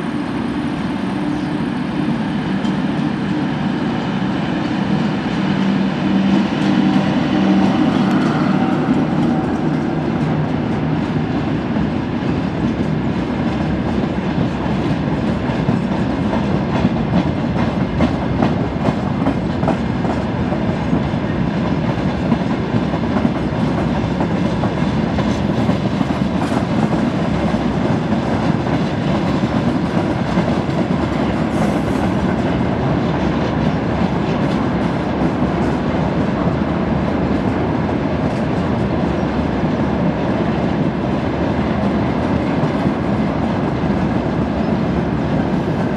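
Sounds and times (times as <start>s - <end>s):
train running on rails: 0.0s - 45.9s.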